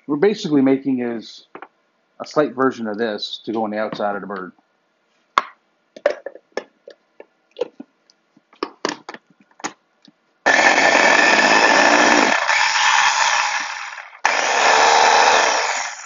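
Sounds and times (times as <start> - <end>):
food chopper motor running: 10.5 - 16.0.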